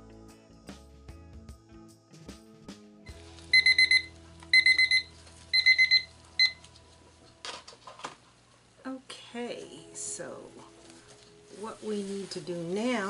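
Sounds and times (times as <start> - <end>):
kitchen timer beeping: 3.5 - 6.6.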